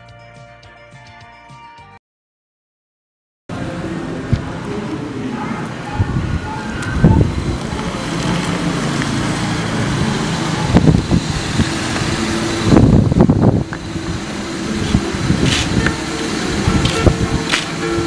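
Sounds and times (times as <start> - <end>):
vehicle engines and road noise: 3.5 - 18.0.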